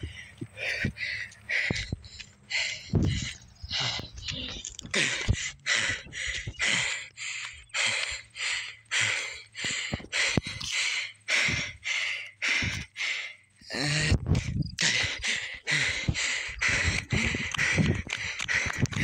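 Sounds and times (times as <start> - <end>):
person breathing hard: 0.0 - 19.0.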